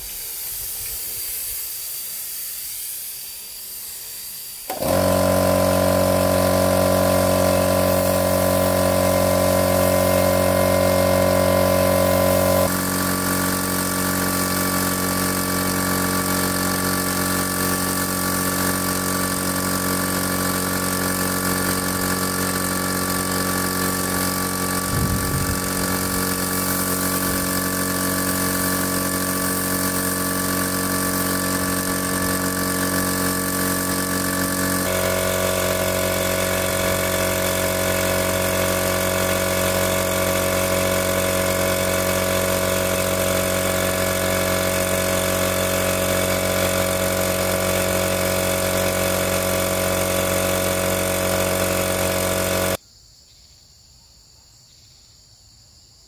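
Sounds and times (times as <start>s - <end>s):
steady hiss: 0.0s - 4.8s
engine running: 4.6s - 52.8s.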